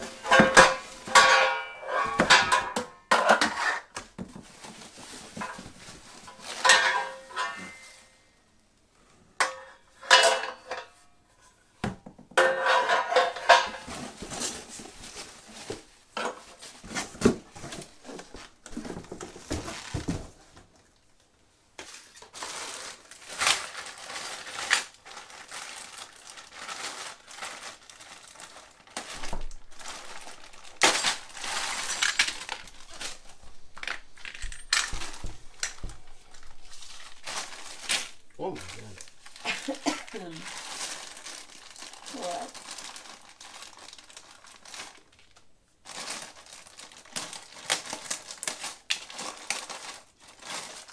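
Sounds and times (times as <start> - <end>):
steel parts clanking on tiles: 6.6 - 8.0, 33.8 - 35.0
bag of metal fittings rattling: 22.3 - 45.0.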